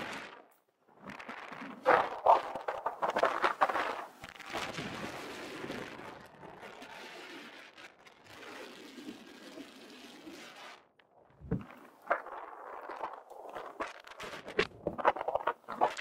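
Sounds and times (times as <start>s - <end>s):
wind rushing over microphone: 11.4s - 12.8s.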